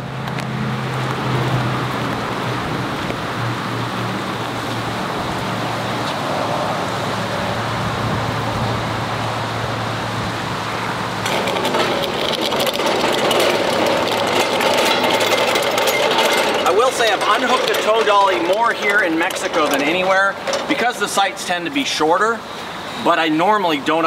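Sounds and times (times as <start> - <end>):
tow dolly rattling over pavement: 10.9 - 23.2.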